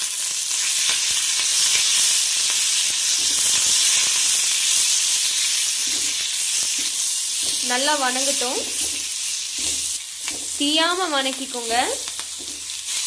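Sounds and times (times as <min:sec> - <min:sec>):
leaves sizzling in hot oil: 0:00.0 - 0:13.0
wooden spatula scraping taps: 0:12.3 - 0:12.7.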